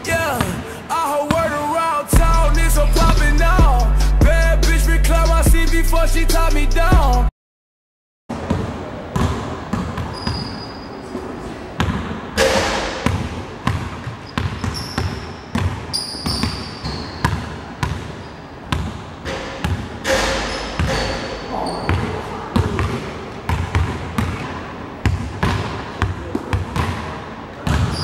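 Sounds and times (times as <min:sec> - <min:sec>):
sneaker squeaks on floor: 0:09.2 - 0:11.2, 0:14.1 - 0:18.5, 0:20.1 - 0:22.2, 0:27.7 - 0:28.0.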